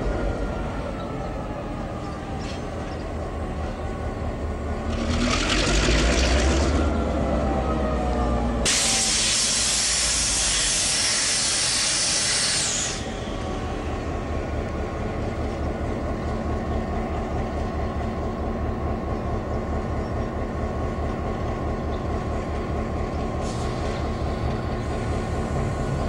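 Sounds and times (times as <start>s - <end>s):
compressed air hissing: 8.7s - 13.2s
diesel engine idling: 12.6s - 26.0s.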